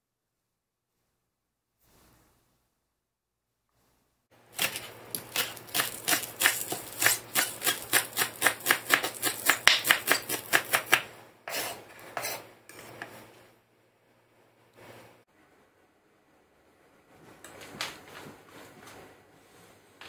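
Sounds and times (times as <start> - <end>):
knife chopping on wooden board: 4.6 - 12.4.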